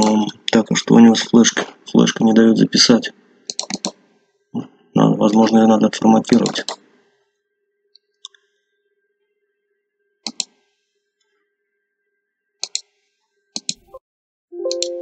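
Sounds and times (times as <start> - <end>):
mouse button clicks: 10.3 - 10.5, 14.7 - 15.0
system warning chime: 14.6 - 15.0.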